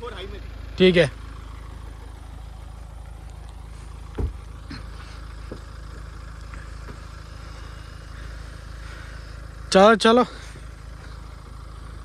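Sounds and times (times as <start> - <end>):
engine idling: 0.0 - 12.0
sharp low thump: 4.1 - 4.5.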